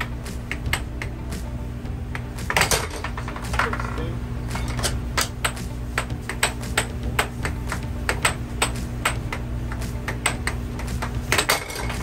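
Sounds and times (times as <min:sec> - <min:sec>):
air blower hum: 0:00.0 - 0:12.0
air hockey puck clicks: 0:05.2 - 0:12.0.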